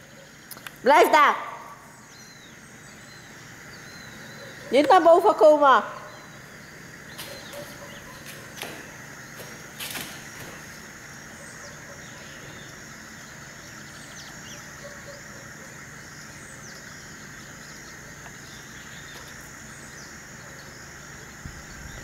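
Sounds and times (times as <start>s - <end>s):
steady outdoor hiss: 0.0s - 22.0s
faint bird chirps: 1.5s - 4.9s, 5.8s - 8.5s.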